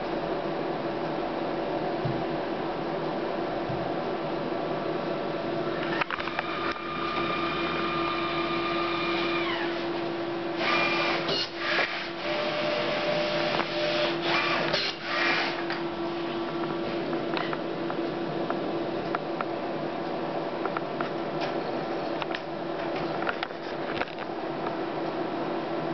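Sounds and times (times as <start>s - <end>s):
printer motor whine: 5.7s - 10.0s, 10.6s - 15.6s.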